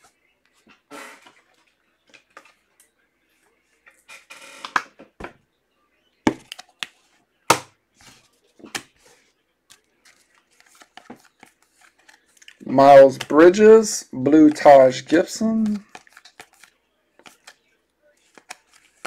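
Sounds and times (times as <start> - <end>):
cards clicking and tapping: 9.8 - 13.5, 15.4 - 17.6, 18.2 - 19.0.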